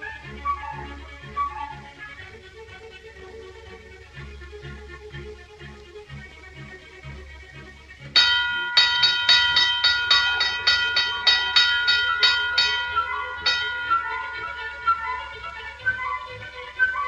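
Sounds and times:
soft orchestral music: 0:00.0 - 0:17.0
boxing bell rung rapidly: 0:08.2 - 0:15.8.

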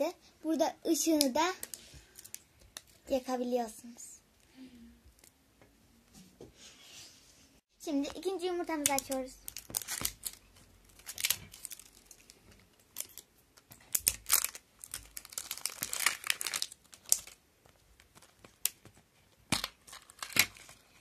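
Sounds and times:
plastic wrapper crinkling and tearing: 0:01.2 - 0:03.0, 0:08.1 - 0:21.0.

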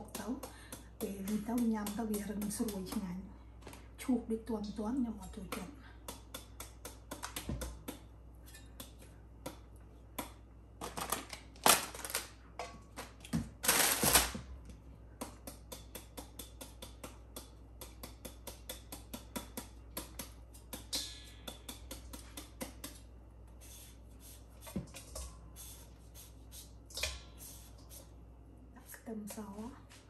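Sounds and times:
knife chopping papaya: 0:00.0 - 0:03.2.

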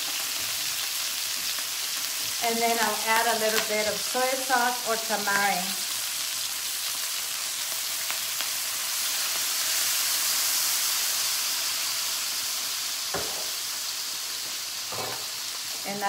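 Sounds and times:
chicken sizzling in skillet: 0:00.0 - 0:16.0
knock: 0:13.1 - 0:13.5.

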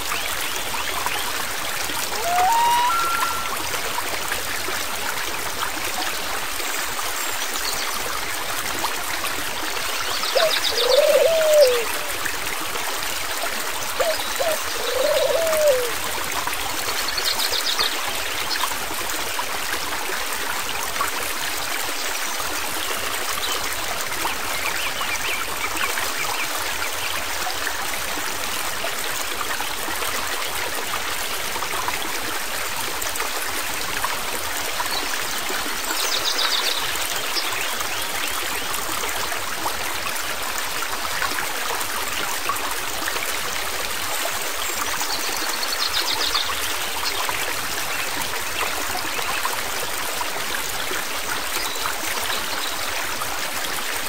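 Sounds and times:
stream flowing: 0:00.0 - 0:54.0
short rising and falling calls: 0:02.1 - 0:03.7.

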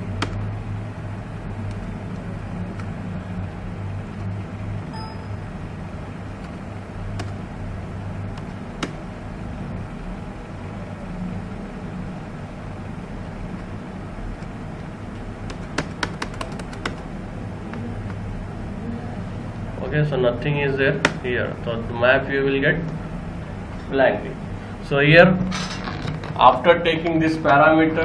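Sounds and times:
low background hum: 0:00.0 - 0:28.0
computer mouse clicks: 0:00.2 - 0:00.4, 0:07.2 - 0:07.4, 0:15.4 - 0:17.1.

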